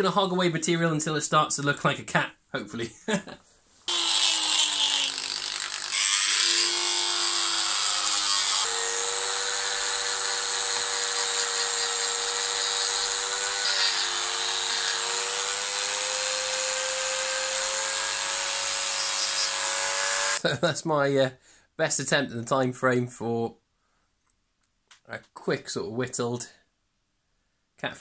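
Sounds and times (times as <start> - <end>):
rotary tool grinding wood: 3.9 - 20.4.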